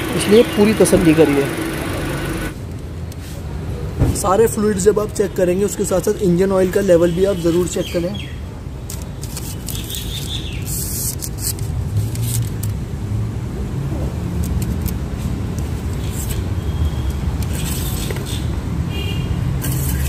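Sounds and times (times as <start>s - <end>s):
car engine idling: 0.0s - 2.6s
dipstick clicks and scrapes: 14.4s - 18.4s.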